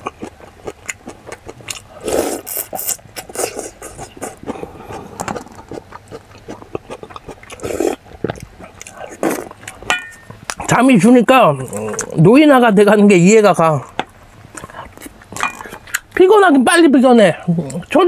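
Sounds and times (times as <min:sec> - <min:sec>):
chewing and smacking: 0:00.0 - 0:10.8, 0:11.6 - 0:12.2, 0:13.8 - 0:16.2
loud mouth noises: 0:01.5 - 0:09.9, 0:11.6 - 0:12.2.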